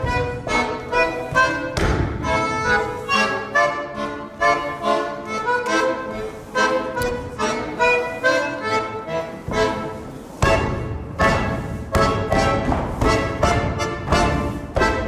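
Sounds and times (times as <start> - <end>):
feet thudding on floor: 0.0 - 3.3, 9.4 - 15.0
accordion playing dance tune: 0.0 - 15.0.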